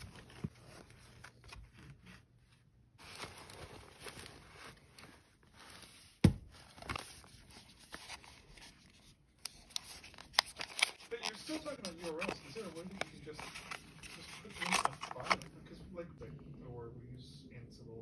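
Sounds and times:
packaging and fabric rustling: 0:00.0 - 0:15.8.

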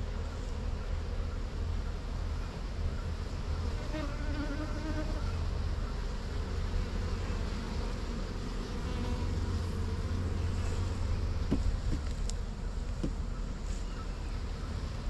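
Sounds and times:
honey bees buzzing: 0:03.2 - 0:15.0.

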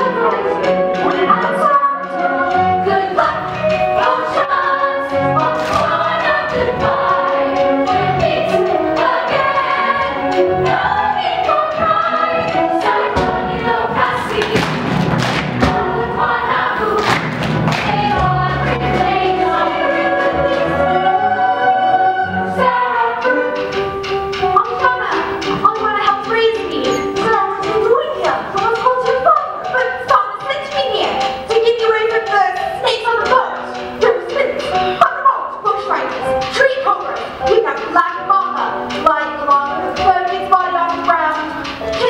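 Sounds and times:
ensemble singing in chorus: 0:00.0 - 0:23.7
accompanying music: 0:00.0 - 0:42.0
percussive thumps: 0:11.6 - 0:16.0, 0:17.0 - 0:19.2.

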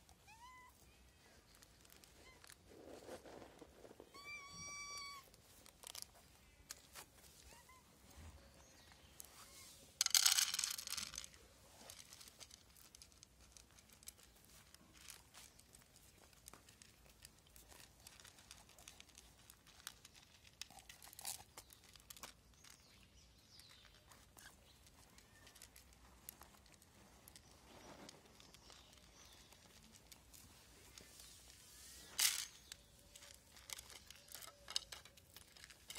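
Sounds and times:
cat meowing: 0:04.1 - 0:05.3
cat crunching kibble: 0:12.0 - 0:23.0.

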